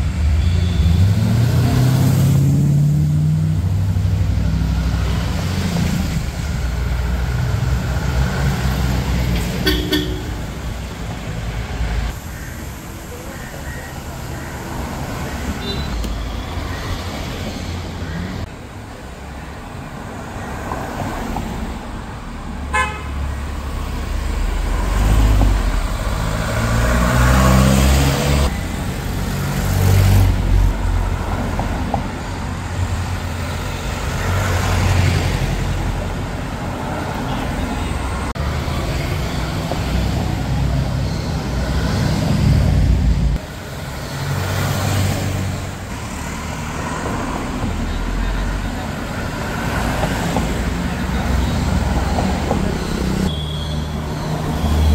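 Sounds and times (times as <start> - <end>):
cars driving past: 0.0 - 19.0, 19.6 - 54.9
car horn toot: 9.6 - 10.5, 22.7 - 23.2, 53.3 - 54.0.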